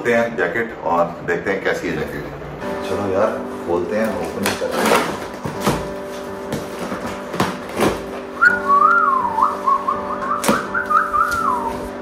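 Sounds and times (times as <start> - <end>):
background music: 2.1 - 12.0
cardboard flaps ripping and knocking: 4.4 - 8.3
person whistling a tune: 8.4 - 11.9.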